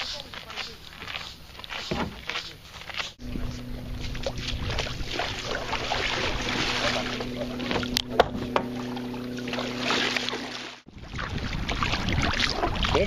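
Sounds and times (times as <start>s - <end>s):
steady low hum: 0.0s - 12.8s
water splashing and sloshing: 0.0s - 13.0s
sharp knocks: 7.7s - 8.8s.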